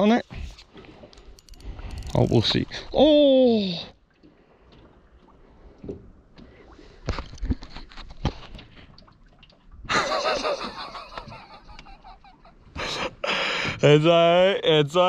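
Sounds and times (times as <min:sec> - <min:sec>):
man laughing loudly: 0:09.9 - 0:13.2.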